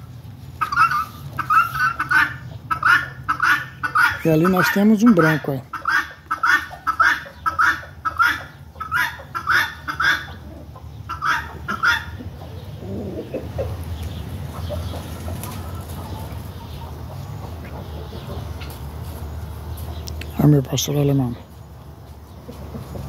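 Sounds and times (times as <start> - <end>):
guinea fowl calling: 0.6 - 18.8.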